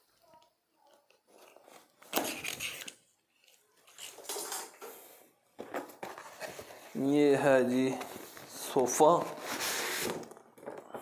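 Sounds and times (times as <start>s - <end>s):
cardboard box scraping and rustling: 9.2s - 10.3s.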